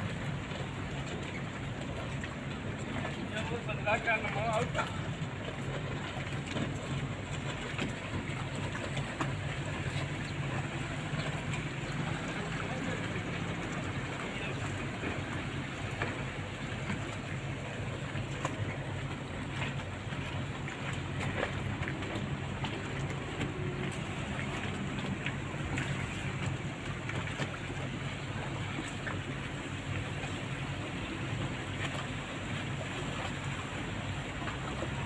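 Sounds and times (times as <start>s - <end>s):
motorboat engines droning: 0.0s - 35.0s
water noise: 0.0s - 35.0s
wind: 0.0s - 35.0s.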